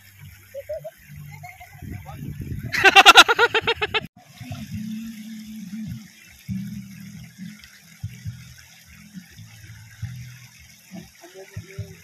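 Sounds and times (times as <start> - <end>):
river water running: 0.0 - 12.0.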